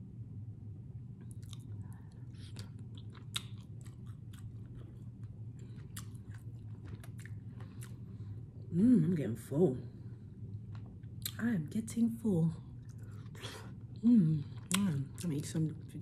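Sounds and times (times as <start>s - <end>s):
steady low hum: 0.0s - 16.0s
person chewing food: 1.2s - 8.7s, 10.3s - 11.4s, 12.7s - 15.8s.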